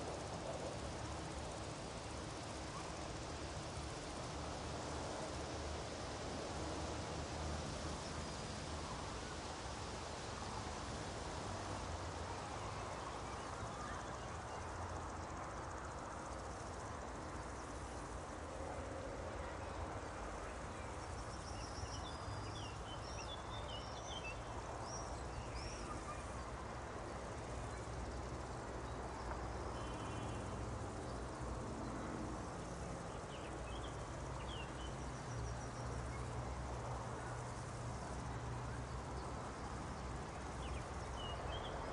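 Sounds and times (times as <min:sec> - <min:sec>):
wind through grass: 0:00.0 - 0:41.9
small birds chirping: 0:20.5 - 0:26.5, 0:29.2 - 0:31.4.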